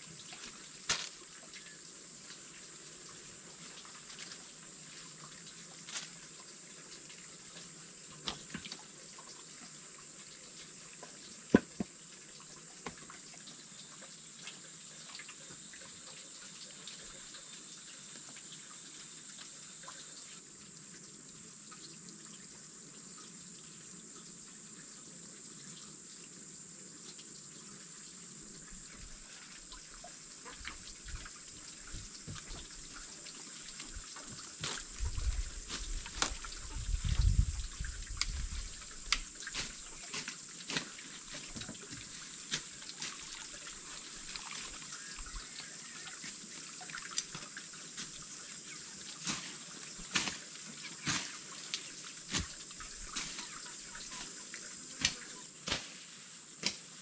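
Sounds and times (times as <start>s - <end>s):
water trickling: 0.0s - 55.6s
high hiss: 48.0s - 57.0s.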